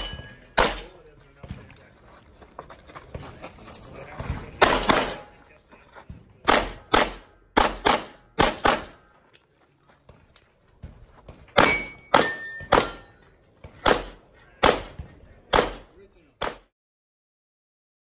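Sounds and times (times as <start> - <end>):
pistol shots with ringing echo: 0.0 - 1.0, 4.6 - 5.4, 6.4 - 9.1, 11.6 - 13.2, 13.8 - 16.7.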